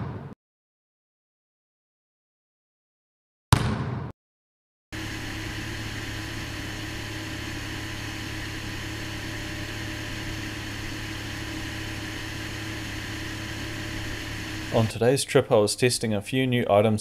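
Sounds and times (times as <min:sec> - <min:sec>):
jet ski engine idling: 0:05.0 - 0:15.2.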